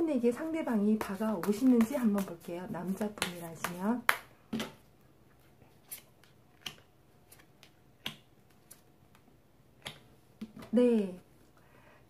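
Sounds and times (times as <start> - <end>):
cards snapping and tapping on table: 6.6 - 8.3.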